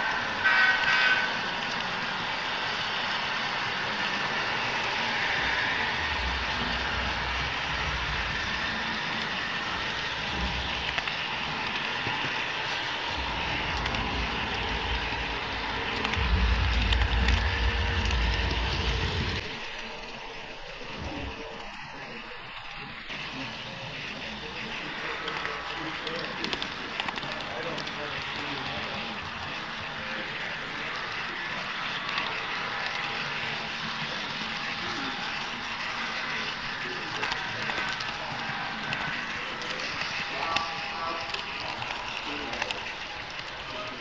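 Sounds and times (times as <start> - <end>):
model train running: 0.0 - 44.0
horn-like tone: 0.4 - 1.3.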